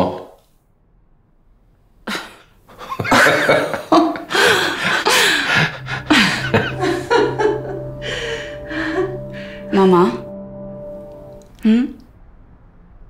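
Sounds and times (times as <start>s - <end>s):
elderly women laughing: 2.1s - 8.2s
low steady music note: 4.3s - 13.0s.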